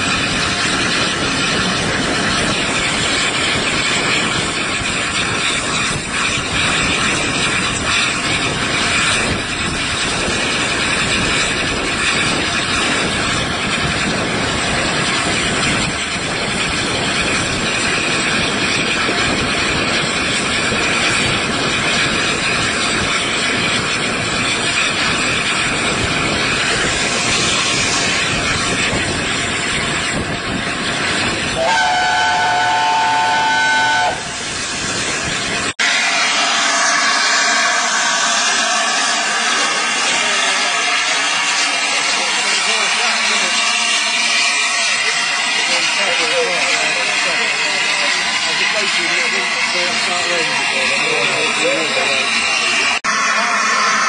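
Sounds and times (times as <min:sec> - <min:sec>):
wind on microphone: 0:00.0 - 0:35.8
train running noise: 0:00.0 - 0:54.0.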